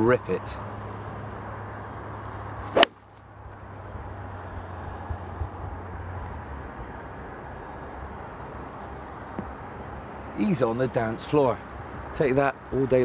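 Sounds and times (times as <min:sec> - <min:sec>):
steady outdoor hiss: 0:00.0 - 0:13.0
golf club striking ball: 0:02.7 - 0:03.0.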